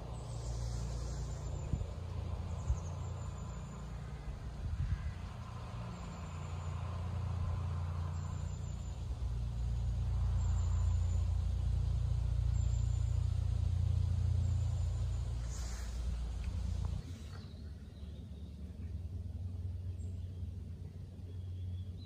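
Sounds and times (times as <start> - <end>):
vehicle engine rumbling: 0.0 - 22.0.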